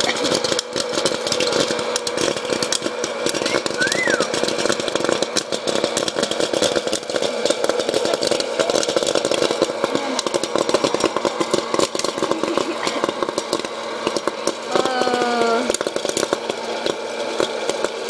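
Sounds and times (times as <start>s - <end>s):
machine motor hum: 0.0s - 18.0s
popcorn kernels popping: 0.0s - 18.0s.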